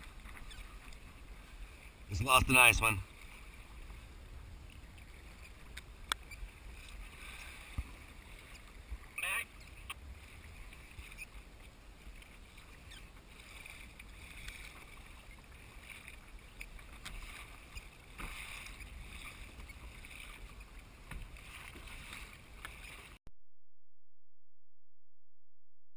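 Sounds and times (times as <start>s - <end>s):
choppy sea water: 0.0s - 23.2s
wind: 0.0s - 23.2s.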